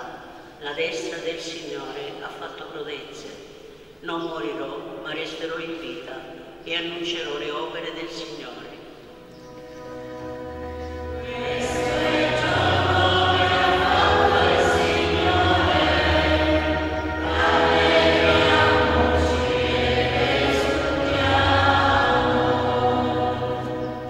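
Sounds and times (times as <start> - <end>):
low accompanying notes: 9.0 - 24.0
church choir singing: 9.8 - 24.0.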